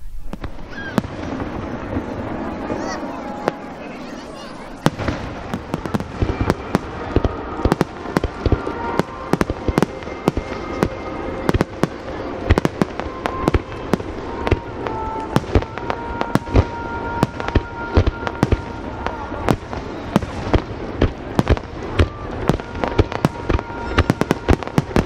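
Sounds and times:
fireworks bangs: 0.0s - 25.0s
fireworks crackling: 0.0s - 25.0s.

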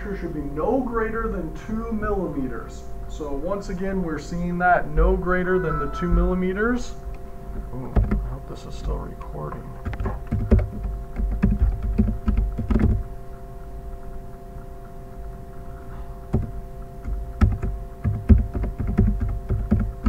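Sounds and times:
steady hum: 0.0s - 20.0s
device handling knocks and clicks: 7.9s - 8.2s, 9.8s - 13.0s, 16.3s - 20.0s.

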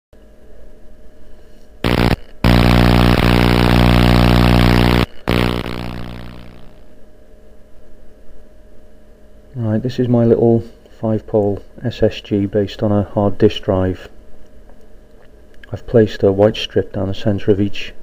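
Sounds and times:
low electric buzz: 0.8s - 10.5s.

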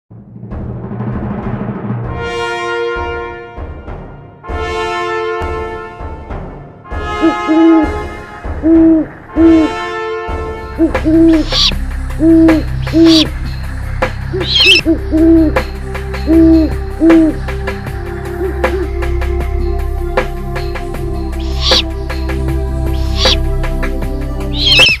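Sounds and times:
held music chord: 6.9s - 25.0s
owl hooting: 7.2s - 7.9s, 8.6s - 9.7s, 10.8s - 13.3s, 14.3s - 15.7s, 16.3s - 17.4s, 18.4s - 18.9s, 21.3s - 22.0s, 22.9s - 23.5s, 24.5s - 25.0s
high bird chirps: 10.9s - 13.3s, 14.3s - 15.6s, 21.3s - 21.9s, 22.8s - 23.4s, 24.4s - 25.0s.

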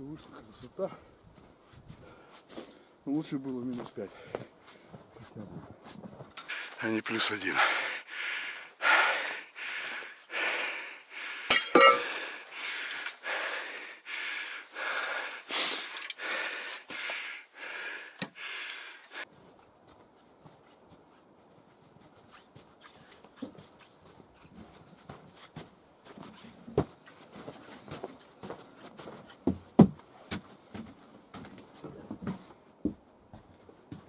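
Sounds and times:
man panting: 6.4s - 6.8s, 7.4s - 19.4s.

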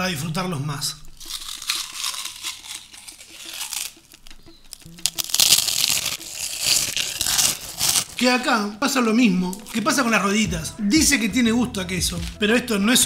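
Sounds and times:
crunching and chewing snacks: 1.1s - 8.4s.

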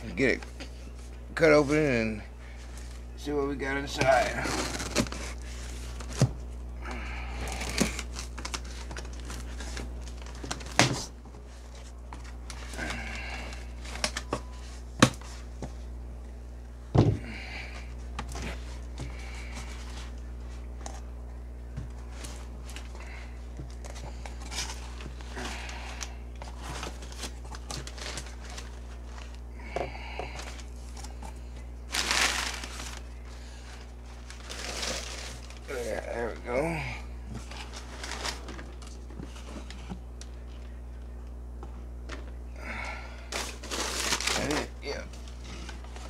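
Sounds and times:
steady low hum: 0.0s - 46.0s
packaging rustling: 4.1s - 6.3s, 7.4s - 15.3s, 23.6s - 29.4s, 31.8s - 36.4s, 37.4s - 40.3s, 43.3s - 46.0s
packaging crinkling: 7.4s - 14.3s, 23.7s - 29.5s, 31.8s - 36.0s, 37.4s - 40.3s, 43.3s - 46.0s.

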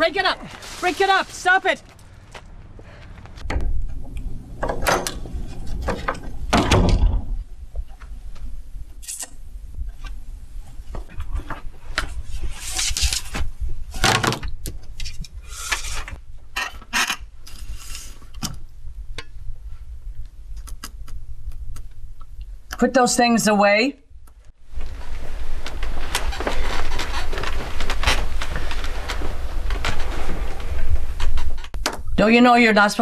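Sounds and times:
low steady hum: 0.0s - 12.6s
door being unlatched and opened: 4.6s - 7.3s.

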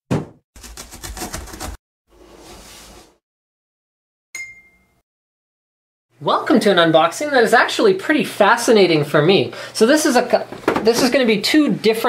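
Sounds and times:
cardboard box rattling: 0.6s - 1.8s.

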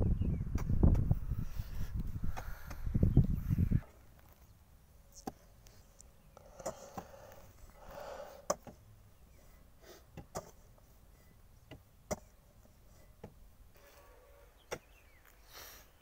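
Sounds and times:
spade chopping into soil: 11.7s - 12.4s, 14.7s - 15.0s.

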